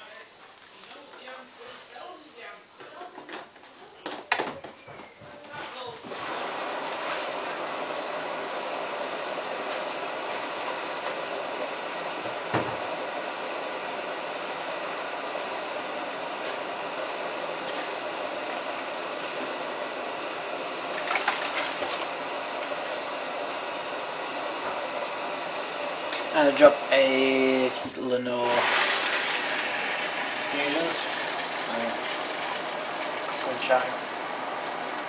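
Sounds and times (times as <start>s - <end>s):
washing machine filling with water: 6.0s - 27.8s, 28.4s - 35.0s
knock: 12.5s - 12.8s.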